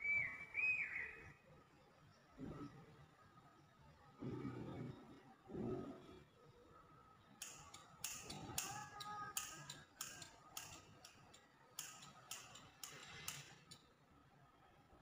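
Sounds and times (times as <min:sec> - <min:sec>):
scissors snipping hair: 0:07.4 - 0:13.8.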